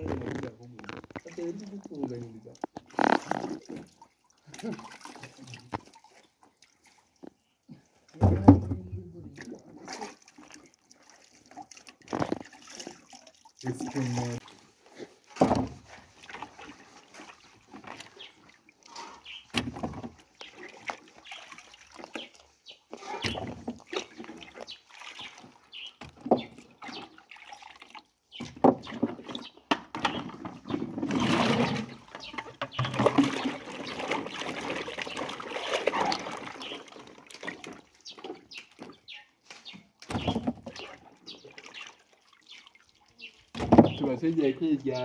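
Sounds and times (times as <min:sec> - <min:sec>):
water dripping: 0:00.0 - 0:14.6
water splashing in bucket: 0:00.0 - 0:45.0.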